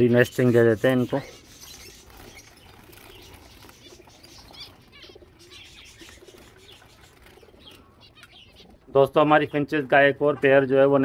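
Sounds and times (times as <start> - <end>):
small birds chirping: 0.0 - 11.0
dove cooing: 1.8 - 8.9.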